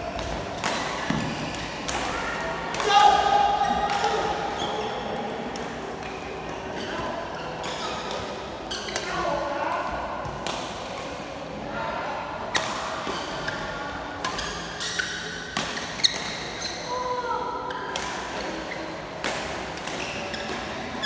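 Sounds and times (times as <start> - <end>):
racket hitting shuttlecock: 0.1 - 4.6, 10.2 - 11.0, 14.2 - 16.8, 17.9 - 20.8.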